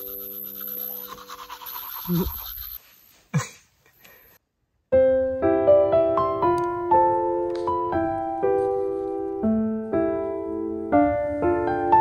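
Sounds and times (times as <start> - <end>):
toothbrush scrubbing teeth: 0.0 - 2.8
gentle piano music: 4.9 - 12.0.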